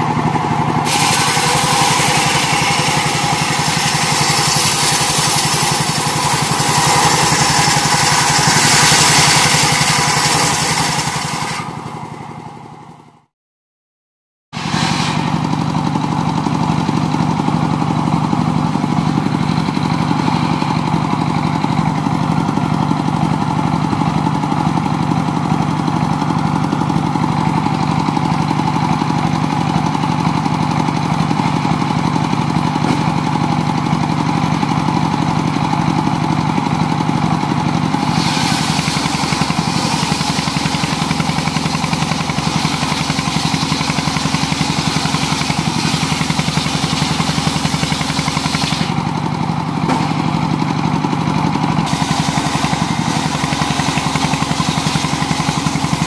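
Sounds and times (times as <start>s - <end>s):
sawmill cutting log: 0.0s - 12.8s, 14.6s - 56.0s
sawmill engine running: 0.0s - 13.2s, 14.5s - 56.0s.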